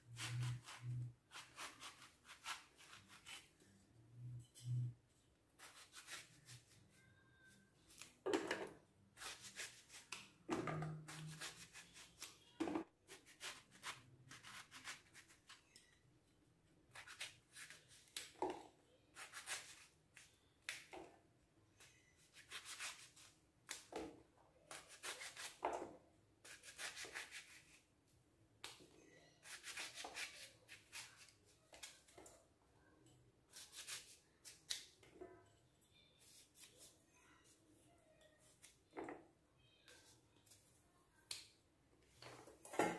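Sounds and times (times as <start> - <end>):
knife slicing eggplant: 0.1 - 3.5, 10.9 - 12.3, 29.4 - 31.9, 33.5 - 35.0.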